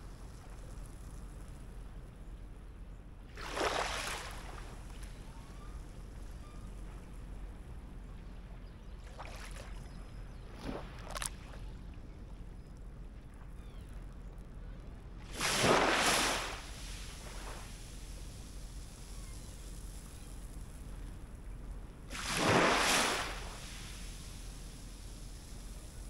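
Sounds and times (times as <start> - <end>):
steady low rumble: 0.0 - 26.0
small waves washing ashore: 3.3 - 12.0, 15.2 - 21.3, 22.1 - 26.0.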